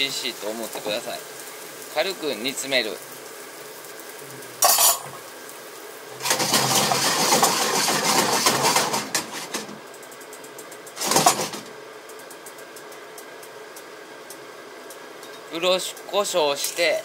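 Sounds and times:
pan clatter: 4.6s - 5.2s, 6.2s - 9.7s, 11.0s - 11.6s
pan scraping on stove grate: 4.6s - 5.3s, 6.2s - 9.7s.

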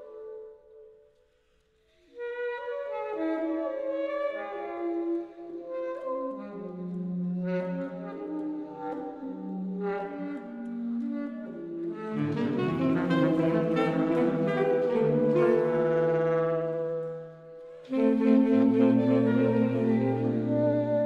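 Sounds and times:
saxophone quartet playing chords: 3.0s - 21.0s.

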